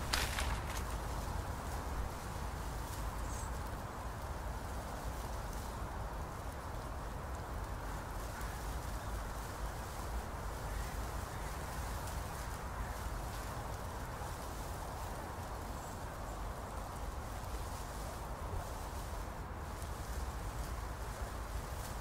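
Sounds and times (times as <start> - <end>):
distant activity: 0.0 - 1.3
faint scattered ticks: 0.0 - 22.0.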